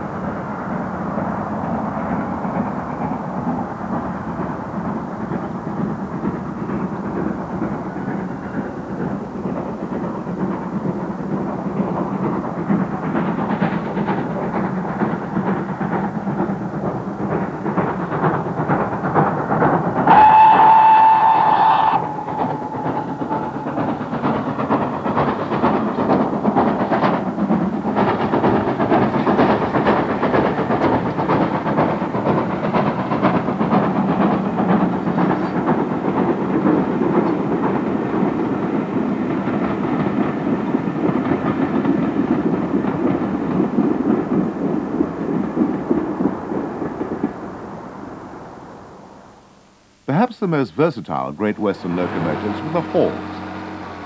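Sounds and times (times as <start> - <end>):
steam locomotive chuffing: 0.0 - 54.0
coaches clattering: 17.4 - 32.0.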